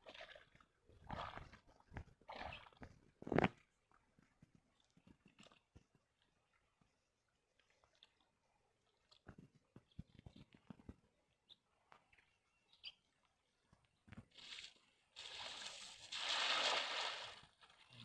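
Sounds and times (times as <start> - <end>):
net splashing into water: 14.3 - 17.8.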